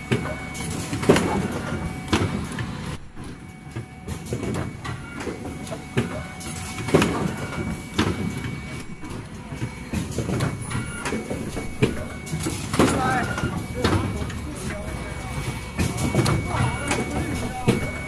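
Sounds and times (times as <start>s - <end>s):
machine clacks and thumps: 0.0s - 18.0s
steady machine hum: 0.0s - 18.0s.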